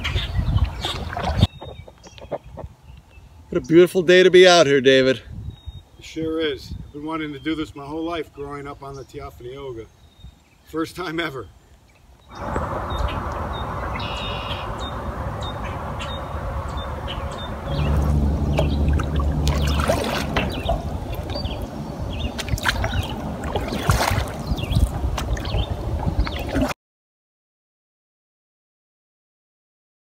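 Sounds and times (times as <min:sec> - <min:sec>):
water trickling and splashing: 0:00.4 - 0:02.4, 0:12.3 - 0:26.8
paddle stroking through water: 0:00.6 - 0:02.6, 0:12.3 - 0:26.7
low rumble: 0:12.3 - 0:26.4.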